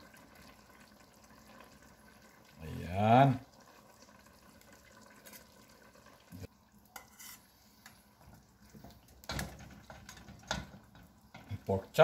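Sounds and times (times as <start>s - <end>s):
spatula scraping metal pot: 7.0s - 8.0s.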